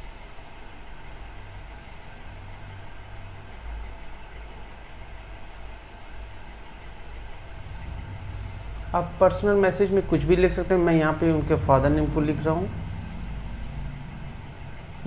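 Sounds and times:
low rumble: 6.8s - 15.0s.

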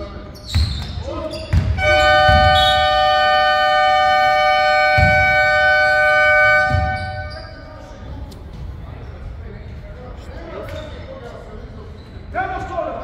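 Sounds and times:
ball bouncing on court: 0.4s - 2.8s, 5.0s - 5.4s, 6.6s - 7.4s
scoreboard horn blast: 1.8s - 7.6s.

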